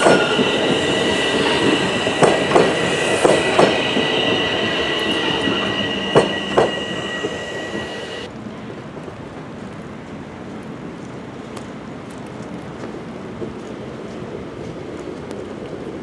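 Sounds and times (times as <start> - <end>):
train wheels squealing: 0.0 - 8.3
traffic hiss on snowy street: 7.5 - 16.0.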